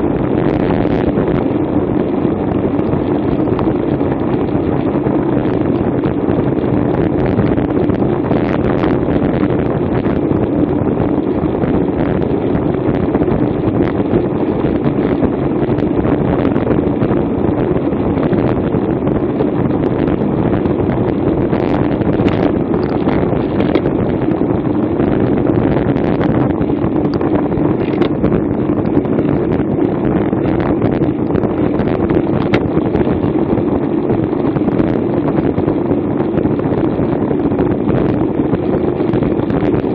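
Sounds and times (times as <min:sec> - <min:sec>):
wind rush on microphone: 0:00.0 - 0:39.9.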